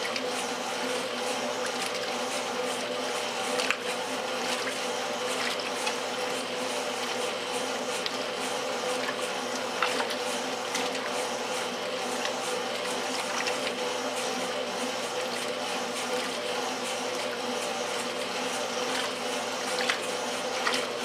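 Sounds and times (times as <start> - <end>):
washer motor hum: 0.0 - 21.0
water churning and sloshing: 0.0 - 21.0
sharp water slaps: 8.9 - 11.1, 19.7 - 20.9.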